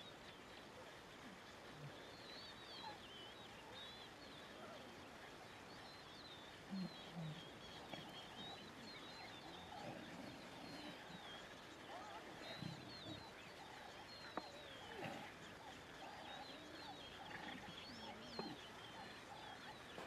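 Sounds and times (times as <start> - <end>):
small birds chirping: 0.0 - 20.0
lions grunting: 6.7 - 18.6.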